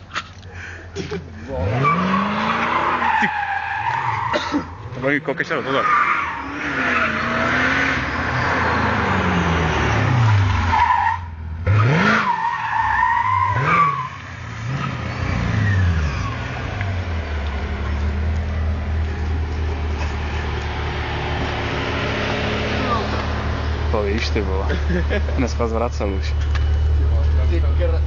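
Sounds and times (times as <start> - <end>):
car engine revving: 1.4 - 28.0
tyres squealing: 1.6 - 9.6.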